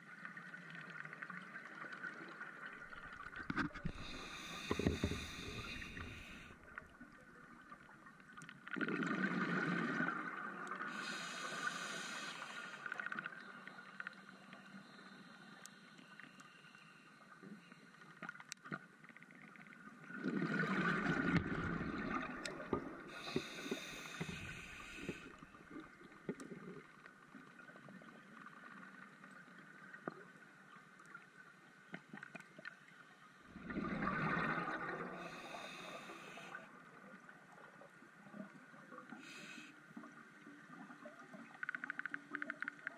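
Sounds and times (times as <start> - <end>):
regulator air hiss: 3.9 - 6.5, 10.9 - 13.0, 23.1 - 25.4, 35.2 - 36.6
faint crackling ticks: 8.2 - 8.8, 10.6 - 19.8, 22.3 - 30.2, 39.8 - 42.9
exhaled bubbles gushing underwater: 20.0 - 26.0, 33.5 - 35.4.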